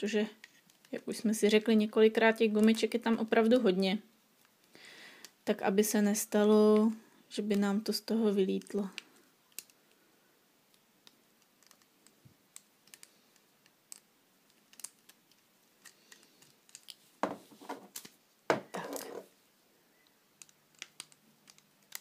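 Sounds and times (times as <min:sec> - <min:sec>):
rubbery rustling of loom bands: 0:00.0 - 0:05.4, 0:06.1 - 0:10.1, 0:10.7 - 0:19.4, 0:20.0 - 0:22.0
small plastic clicks: 0:08.5 - 0:10.0, 0:10.7 - 0:17.0, 0:20.0 - 0:22.0.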